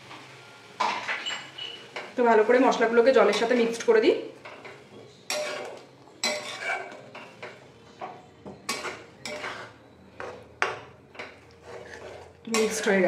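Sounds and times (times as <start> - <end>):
spatula scraping a metal pan: 5.3 - 13.0.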